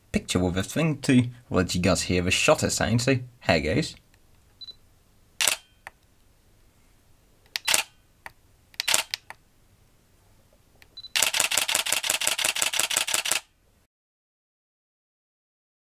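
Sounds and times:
rapid shutter burst: 5.4s - 5.7s, 7.6s - 8.0s, 8.8s - 9.3s, 11.1s - 13.5s
camera shutter clicks: 5.4s - 6.0s, 7.5s - 8.0s, 8.8s - 9.4s, 11.1s - 13.5s.

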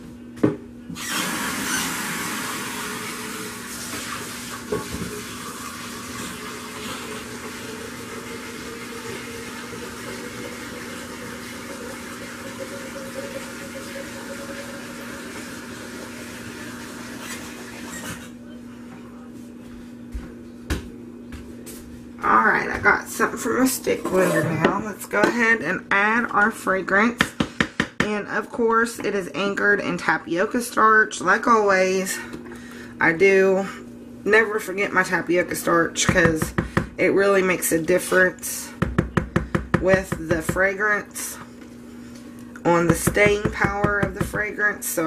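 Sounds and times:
tap water running into sink: 1.1s - 17.6s.

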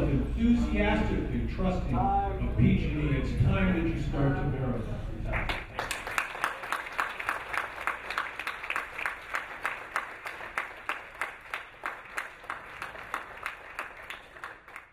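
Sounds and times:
audience applauding: 5.4s - 14.9s.

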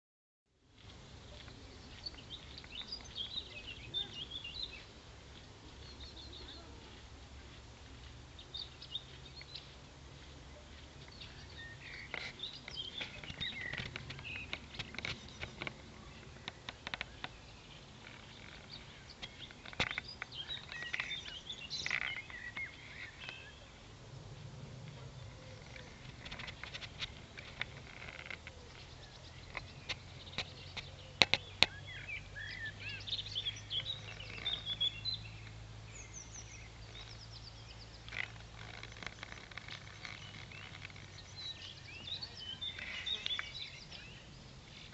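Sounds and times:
birds chirping: 0.7s - 44.9s
low steady rumble: 22.3s - 26.4s.

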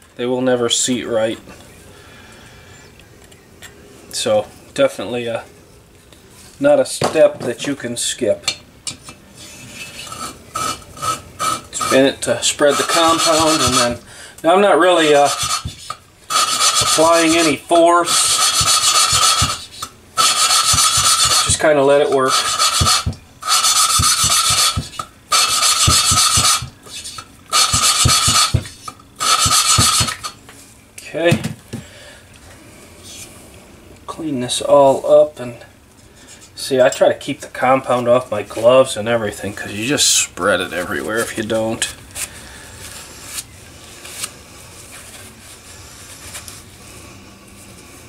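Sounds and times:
valve lapping gritty grind: 9.6s - 30.4s
cloth rag rubbing: 11.8s - 14.0s, 14.9s - 21.6s, 22.2s - 30.1s.

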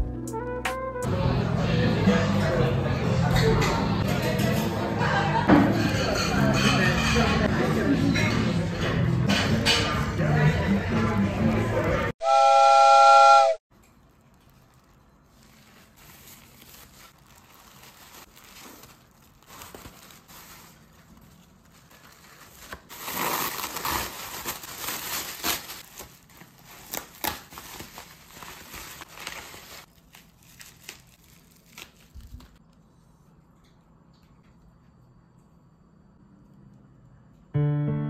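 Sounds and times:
plastic bag crinkling and tearing: 13.8s - 32.6s.

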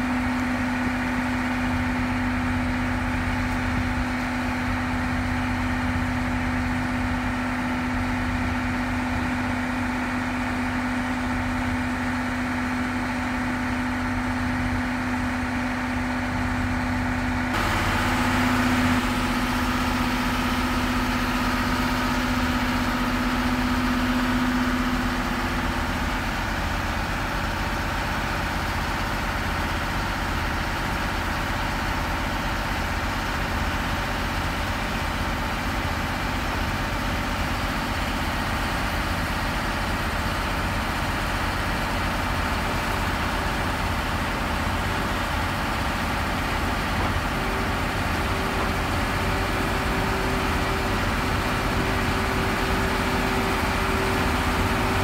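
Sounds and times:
electric locomotive humming: 16.3s - 27.5s.

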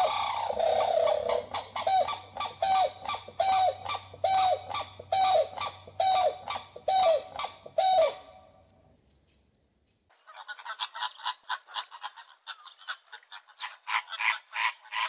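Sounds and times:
large bird honking calls: 0.0s - 8.5s.

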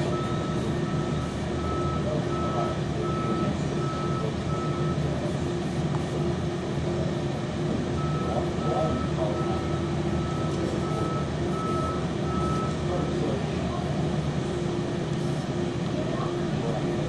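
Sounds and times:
crane warning beeper: 0.0s - 5.2s, 7.9s - 13.4s
crane engine running: 0.0s - 17.0s.

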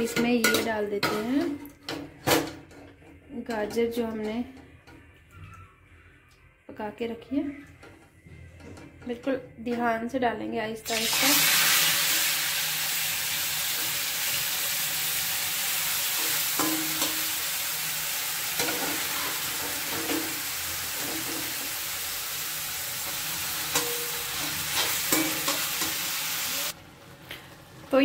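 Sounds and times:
carrots sizzling in hot oil: 10.9s - 26.8s
metal spatula scraping and tapping: 16.6s - 17.2s, 23.7s - 26.0s.

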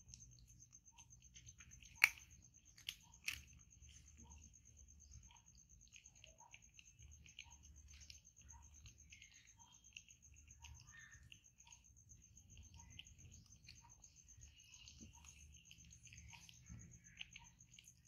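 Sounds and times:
monkeys chewing fruit: 5.4s - 18.0s.

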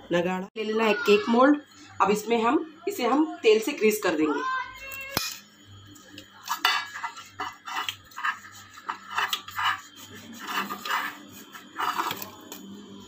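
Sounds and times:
brush scrubbing metal tin: 7.0s - 12.2s.

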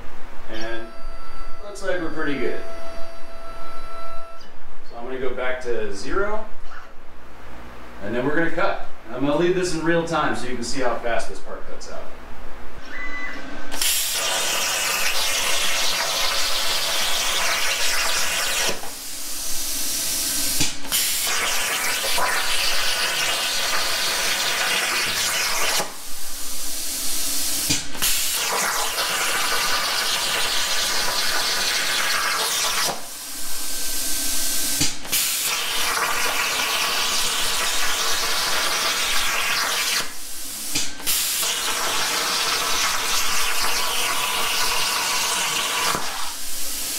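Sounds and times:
plasma cutter hissing: 13.7s - 46.9s.

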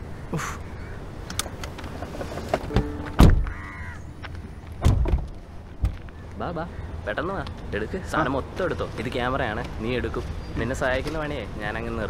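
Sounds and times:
crow cawing: 0.3s - 1.1s, 3.4s - 4.6s
car doors slamming shut: 2.7s - 3.7s, 4.8s - 6.0s.

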